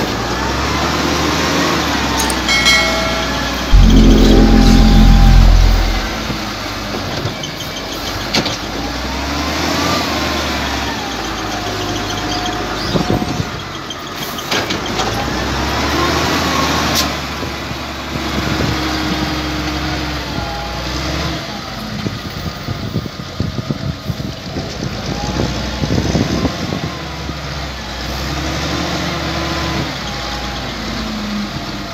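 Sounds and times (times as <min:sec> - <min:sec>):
rising and falling whine: 0:02.3 - 0:06.5.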